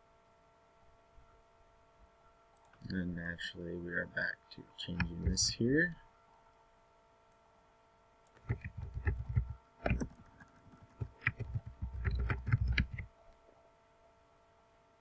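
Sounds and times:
typing on computer keyboard: 8.3s - 13.1s.

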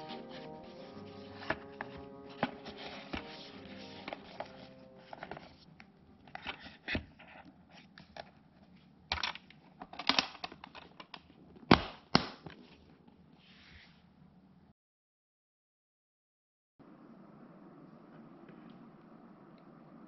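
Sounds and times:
scrapes and rustles of case handling: 0.0s - 8.4s.

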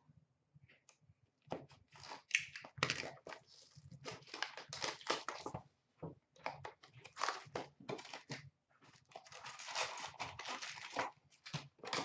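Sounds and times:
plastic wrap and cardboard crinkling: 1.9s - 5.6s, 6.5s - 12.0s.

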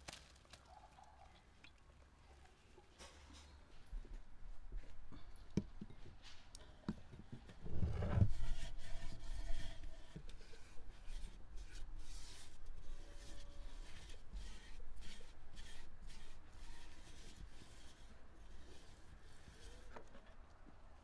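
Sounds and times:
hand rubbing inside clay pot: 7.6s - 20.4s.

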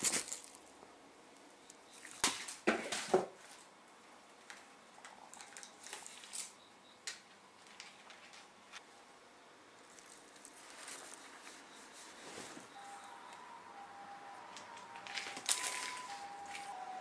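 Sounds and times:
crinkle cat toy rustling: 0.0s - 0.7s, 9.8s - 12.9s, 14.9s - 16.8s.

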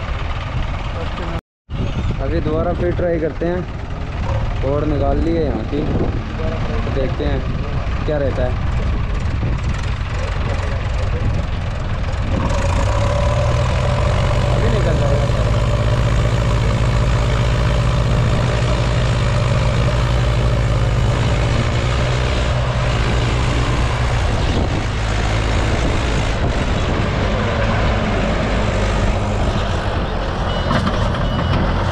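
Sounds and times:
diesel engines running hard: 0.0s - 31.9s.

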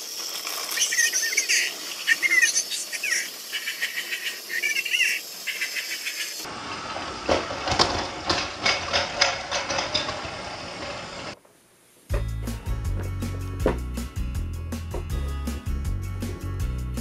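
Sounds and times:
toy train motor whirring: 0.0s - 6.5s.

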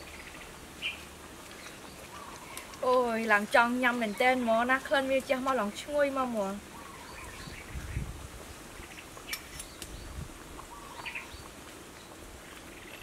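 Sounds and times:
faint bird chirps: 8.8s - 11.5s.

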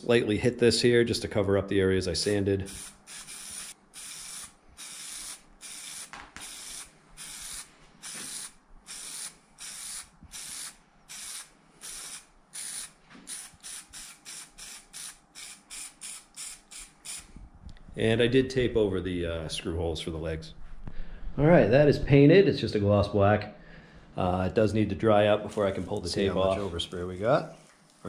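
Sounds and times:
spray paint can hissing: 2.6s - 17.3s.

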